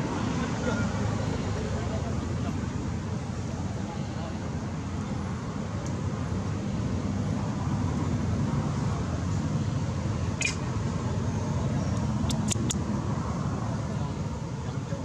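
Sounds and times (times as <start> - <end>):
sharp clicks: 10.4 - 10.6, 12.0 - 12.8
high chirp: 10.4 - 10.7.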